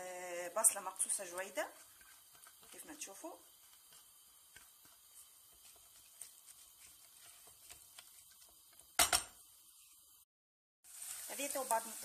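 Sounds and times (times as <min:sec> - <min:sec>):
onions sizzling in a pan: 0:00.0 - 0:12.0
spatula scraping a pan: 0:00.6 - 0:10.1.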